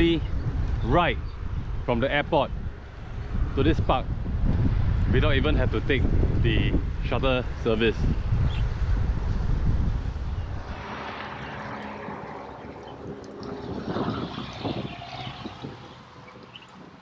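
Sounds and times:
wind buffeting microphone: 0:00.0 - 0:17.0
jet airliner passing over: 0:08.8 - 0:16.7.

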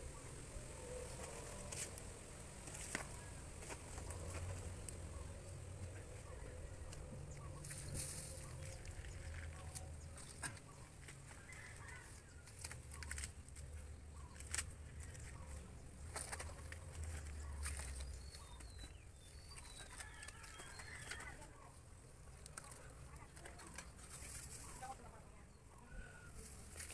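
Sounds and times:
dry leaves rustling and crackling: 0:00.0 - 0:25.5, 0:26.1 - 0:26.9.

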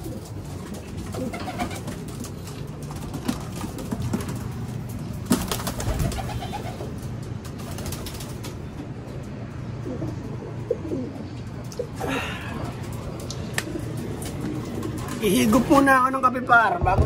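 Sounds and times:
pigeons cooing: 0:00.0 - 0:04.7, 0:05.3 - 0:08.8, 0:09.5 - 0:15.2.

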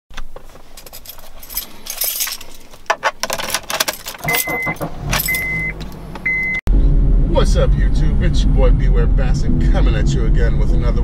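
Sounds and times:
car keys jangling: 0:00.2 - 0:06.1
short high beeps: 0:04.3 - 0:06.6.

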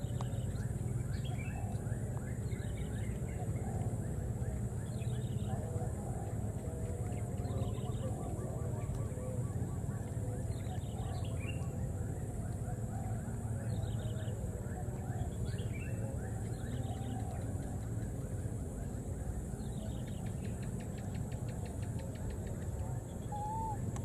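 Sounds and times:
steady low hum: 0:00.0 - 0:24.0
high-pitched animal calls: 0:23.3 - 0:23.8.

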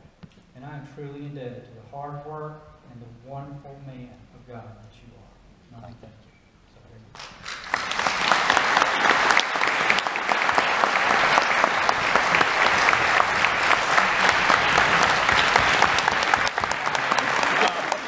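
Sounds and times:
congregation applauding: 0:07.1 - 0:18.0.

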